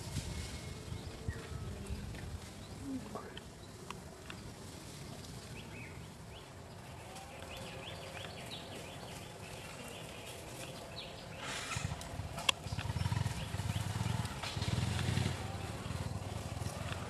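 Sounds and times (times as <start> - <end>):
outdoor background noise: 0.0 - 17.0.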